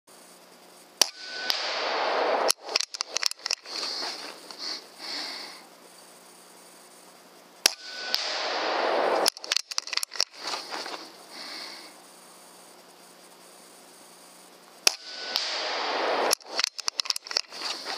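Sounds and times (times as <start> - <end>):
air rifle crack: 1.0 - 5.6, 7.6 - 12.0, 14.8 - 17.9
string of clicks: 16.3 - 17.9.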